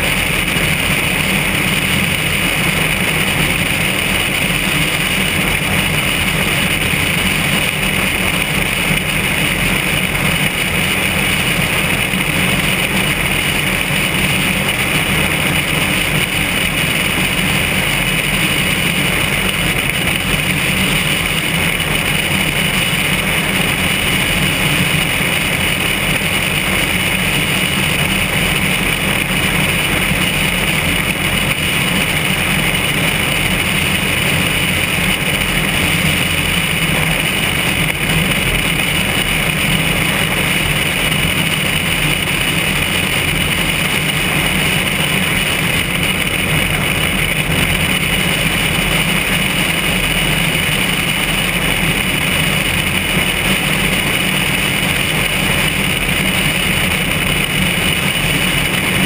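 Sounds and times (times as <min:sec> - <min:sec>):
light aircraft engine drone: 0:00.0 - 0:59.0.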